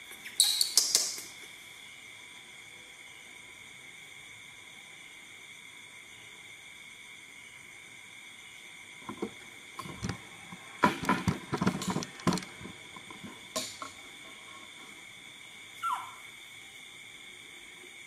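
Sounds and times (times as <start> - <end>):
insect chirring: 0.0 - 18.0
short falling squeak: 15.8 - 16.2.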